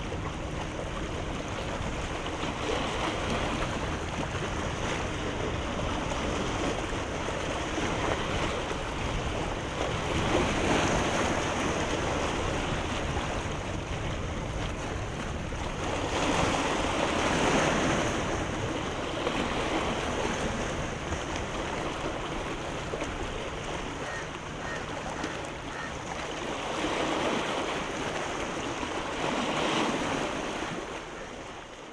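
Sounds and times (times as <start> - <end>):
wind rumbling on microphone: 0.0 - 31.3
sea waves washing: 0.0 - 31.9.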